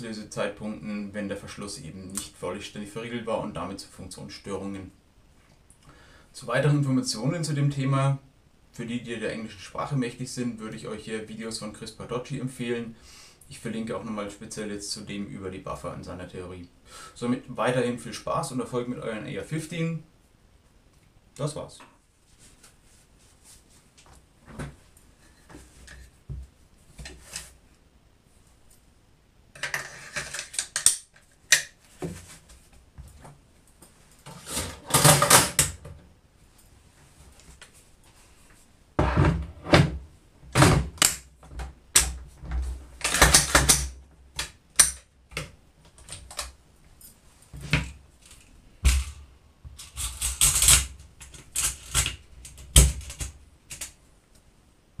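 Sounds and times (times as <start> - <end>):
rustling: 22.0 - 28.9.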